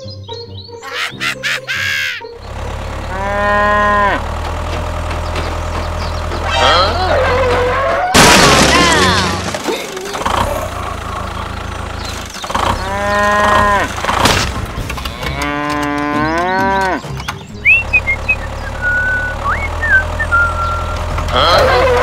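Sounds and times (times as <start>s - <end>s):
cow mooing: 3.1s - 4.4s, 6.5s - 8.1s, 12.8s - 14.0s, 15.0s - 17.0s.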